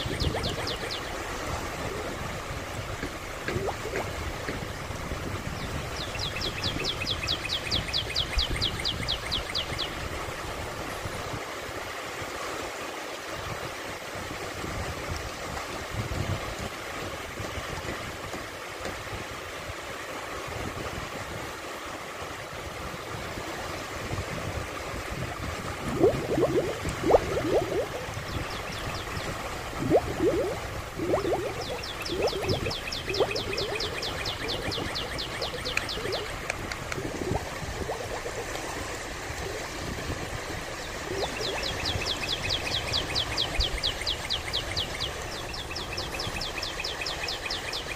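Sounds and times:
small waves lapping on beach: 0:00.0 - 0:47.9.

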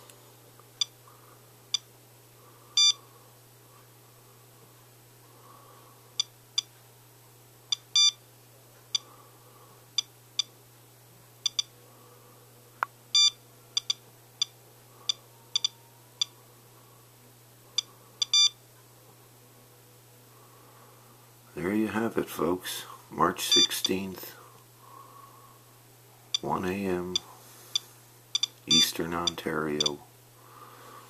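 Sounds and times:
geiger counter beeping: 0:02.8 - 0:03.0, 0:07.7 - 0:08.2, 0:11.5 - 0:11.7, 0:13.2 - 0:14.6, 0:15.5 - 0:15.8, 0:18.2 - 0:18.6, 0:28.4 - 0:30.0.

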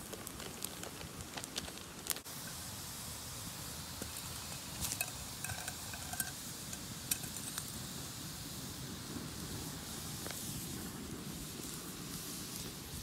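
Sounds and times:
steady hiss: 0:00.0 - 0:13.0
metal cookware clinking: 0:04.4 - 0:07.6.

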